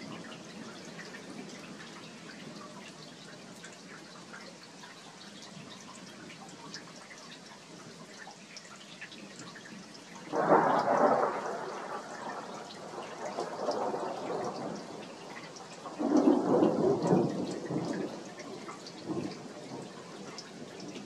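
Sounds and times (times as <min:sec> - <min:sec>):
raindrops ticking and dripping: 0:00.0 - 0:21.0
steady rain: 0:00.0 - 0:21.0
thunder rolling: 0:10.3 - 0:18.2.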